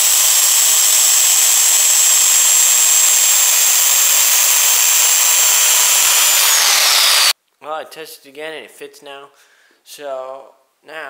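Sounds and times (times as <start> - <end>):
circular saw cutting wood: 0.0 - 7.4.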